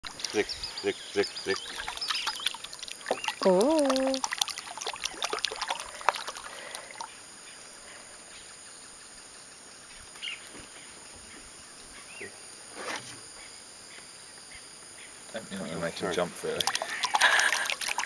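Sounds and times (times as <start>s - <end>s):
bait splashing in water: 1.5s - 7.1s, 16.4s - 18.0s.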